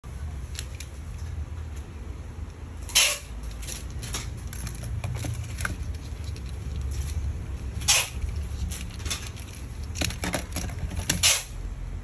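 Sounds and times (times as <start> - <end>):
plastic spray bottles handled: 3.6 - 7.3, 8.2 - 11.3.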